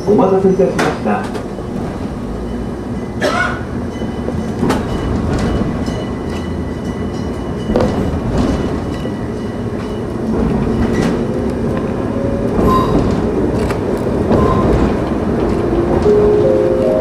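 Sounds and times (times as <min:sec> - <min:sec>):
train rumble: 0:00.0 - 0:17.0
wheels clicking over rail joints: 0:03.9 - 0:17.0.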